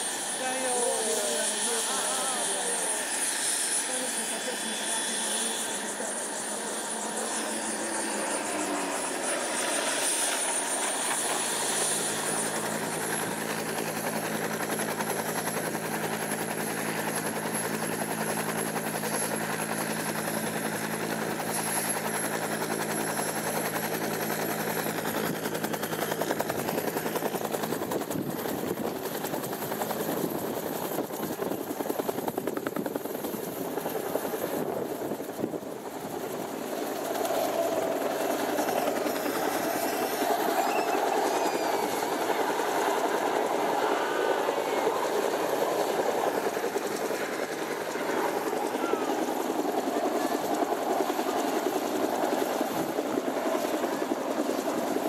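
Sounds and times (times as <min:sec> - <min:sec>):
high turbine whine: 0:00.0 - 0:53.4
helicopter rotor beating: 0:00.0 - 0:55.0.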